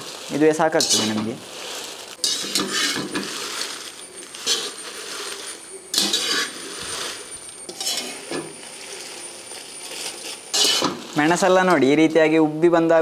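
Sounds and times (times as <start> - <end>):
metal ladles scraping a pan: 0.0 - 12.2
chillies rustling: 0.0 - 12.4
faint sizzle: 0.0 - 13.0.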